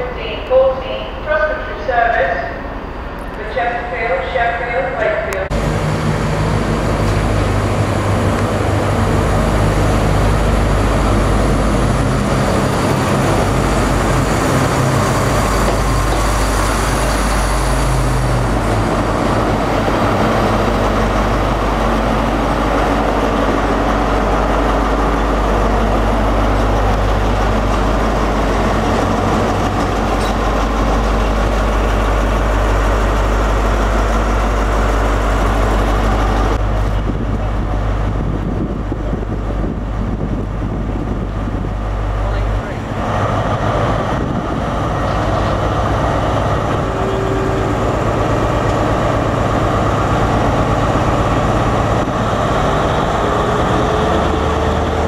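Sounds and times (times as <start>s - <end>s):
diesel train engine drone: 0.0s - 55.0s.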